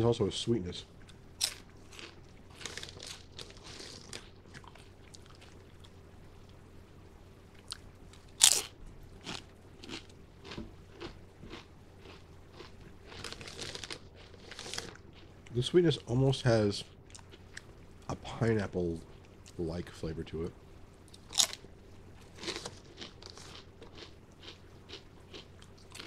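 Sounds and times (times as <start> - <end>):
potato chips crunching: 1.1 - 5.6, 7.6 - 15.7, 21.1 - 26.0.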